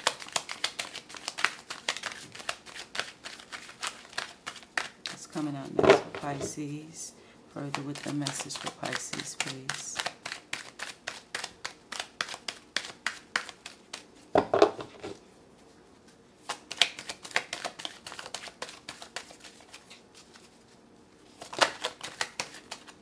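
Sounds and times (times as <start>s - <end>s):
cards shuffling: 0.0s - 6.6s, 7.7s - 15.2s, 16.5s - 23.0s.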